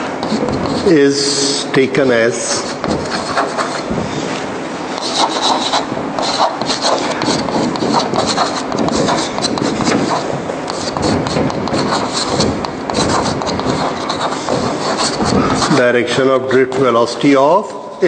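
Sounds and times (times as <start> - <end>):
chalk tapping on a blackboard: 0.2 - 1.0, 2.5 - 15.8.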